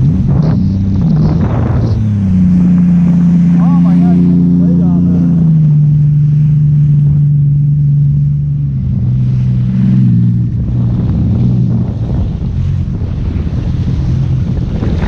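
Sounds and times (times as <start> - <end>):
jet ski engine running: 0.0 - 15.0
water splashing: 0.0 - 15.0
wind buffeting microphone: 0.0 - 15.0.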